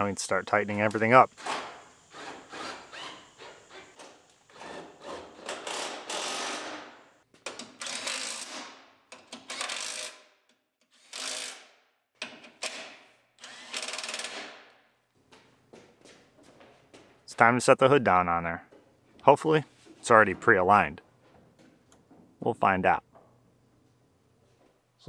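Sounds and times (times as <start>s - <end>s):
cordless impact driver bursts: 5.6s - 6.9s, 13.4s - 14.5s.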